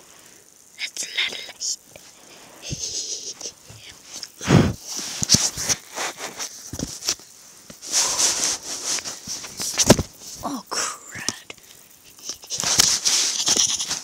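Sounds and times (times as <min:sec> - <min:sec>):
breathy noises: 0:01.8 - 0:06.3, 0:07.8 - 0:09.6
rustling of bedding: 0:03.6 - 0:10.4, 0:12.5 - 0:14.0.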